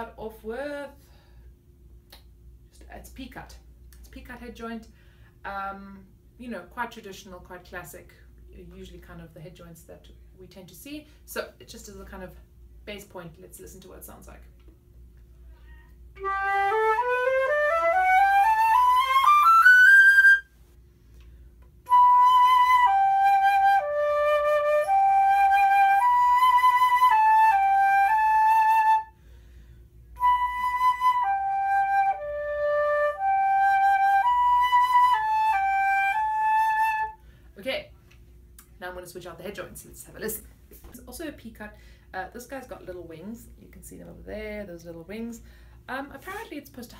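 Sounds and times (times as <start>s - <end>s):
solo flute playing: 15.8s - 20.6s, 21.8s - 29.2s, 30.1s - 37.2s.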